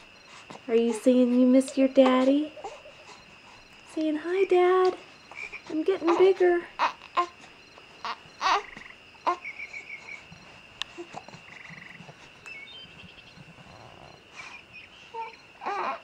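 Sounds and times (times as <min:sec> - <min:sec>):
frog and insect chorus: 0:00.0 - 0:16.0
frog croaks: 0:05.1 - 0:16.0.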